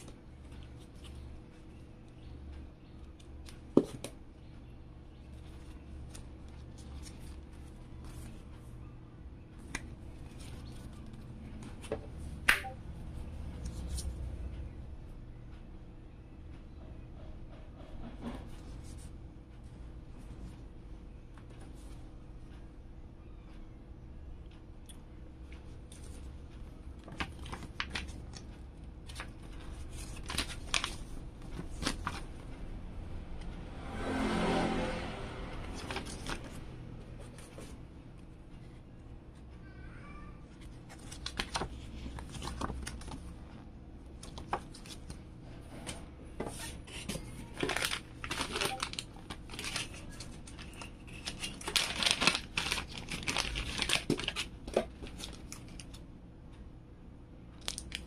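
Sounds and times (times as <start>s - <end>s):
paper and card rustling: 5.3s - 8.7s, 27.0s - 32.4s, 35.7s - 37.8s, 40.6s - 43.6s, 45.8s - 56.0s.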